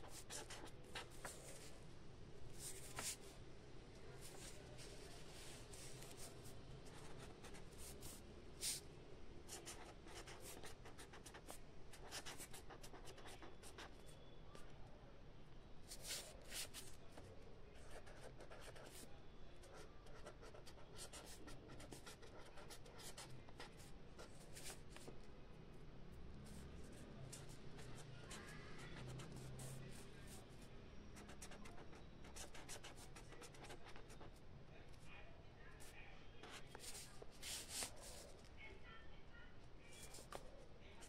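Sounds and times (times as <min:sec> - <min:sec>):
pen scratching on paper: 0:00.0 - 0:01.7, 0:02.6 - 0:03.3, 0:06.9 - 0:08.8, 0:09.5 - 0:14.0, 0:15.9 - 0:17.0, 0:17.8 - 0:25.1, 0:26.5 - 0:30.4, 0:31.2 - 0:34.4, 0:35.8 - 0:38.4.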